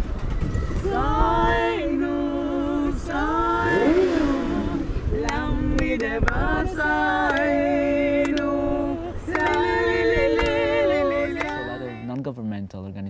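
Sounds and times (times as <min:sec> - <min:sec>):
voice singing long wavering notes: 0:00.8 - 0:07.2.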